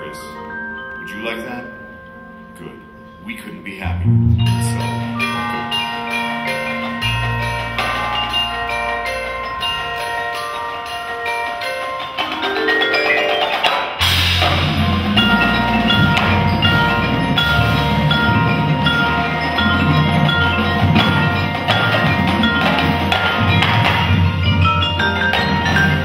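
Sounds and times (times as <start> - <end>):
marimbas and vibraphones: 0.0 - 26.0
full ensemble hit: 3.9 - 11.1, 12.0 - 26.0
bass and drums: 3.9 - 11.4, 14.0 - 26.0.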